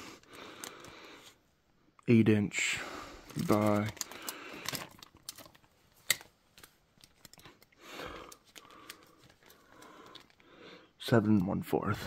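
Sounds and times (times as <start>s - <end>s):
plastic bag crinkling: 3.2s - 10.5s.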